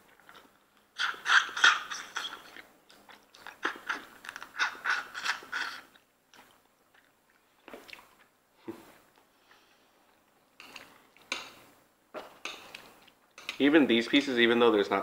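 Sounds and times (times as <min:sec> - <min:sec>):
person crunching and sucking food: 0:00.0 - 0:09.8.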